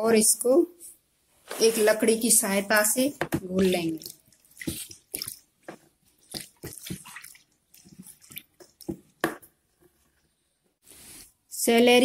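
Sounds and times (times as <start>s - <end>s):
water sloshing in plastic bucket: 2.8s - 9.6s
wooden stick stirring: 3.2s - 10.4s.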